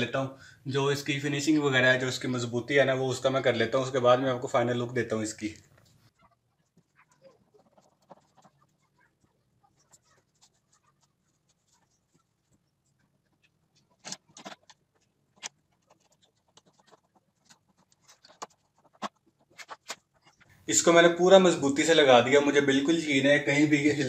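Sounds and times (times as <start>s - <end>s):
faint scratching and ticks: 5.5s - 20.7s.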